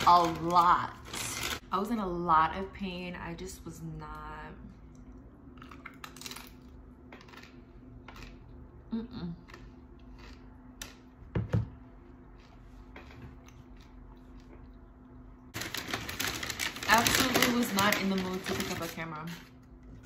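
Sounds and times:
chewing crunchy chip: 5.5 - 8.7, 9.4 - 11.0.

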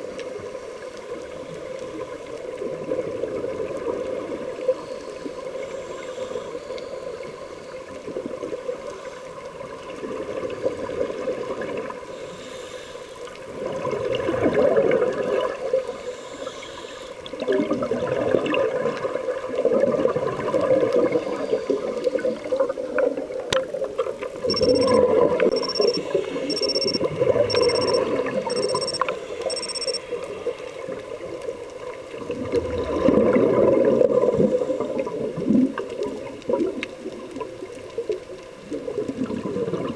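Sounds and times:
short high electronic beeps: 24.5 - 30.0.

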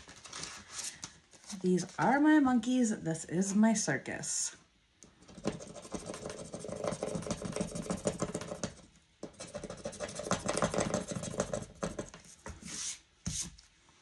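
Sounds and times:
hand tool scratching card: 5.3 - 13.5.

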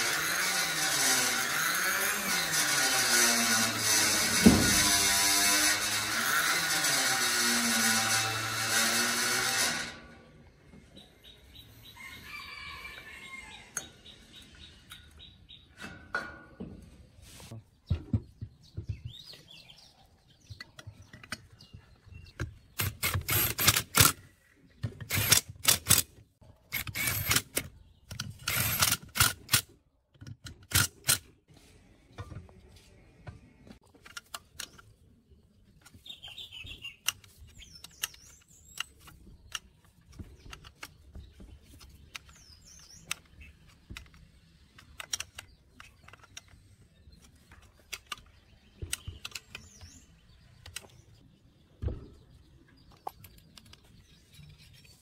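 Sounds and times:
birds chirping: 10.4 - 15.9, 16.6 - 23.4, 34.2 - 55.0.

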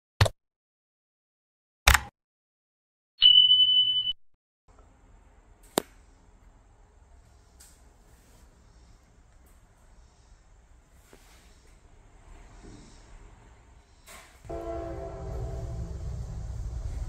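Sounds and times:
notification bell ding: 3.2 - 4.2
faint low rumble: 14.5 - 17.0.

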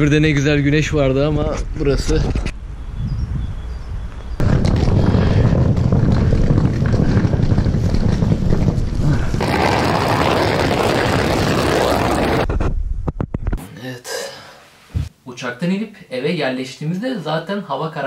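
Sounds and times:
wind buffeting microphone: 0.8 - 11.6.

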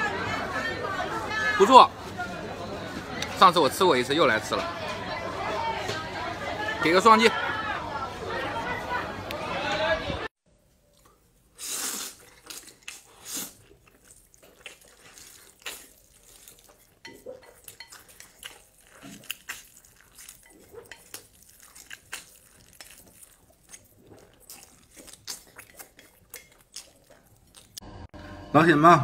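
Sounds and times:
slurping and chewing noodles: 10.9 - 27.8.

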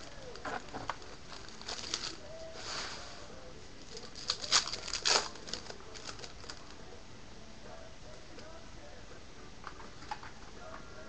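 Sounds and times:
foil wrapper crinkling and tearing: 0.0 - 2.9, 3.8 - 6.7.

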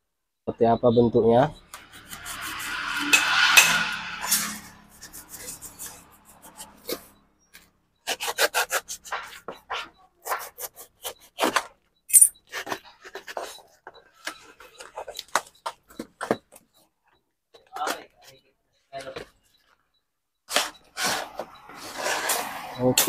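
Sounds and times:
knife scraping packing tape: 5.0 - 7.1, 8.0 - 11.7, 20.5 - 22.4.

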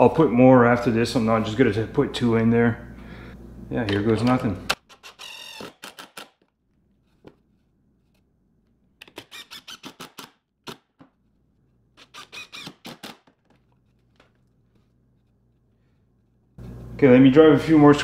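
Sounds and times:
screwdriver rapid clicking: 4.7 - 6.4, 9.0 - 10.9, 12.0 - 13.6.

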